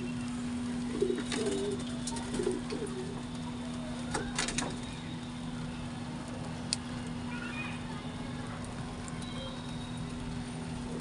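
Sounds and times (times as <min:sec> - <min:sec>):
pigeons cooing: 0:00.0 - 0:03.3.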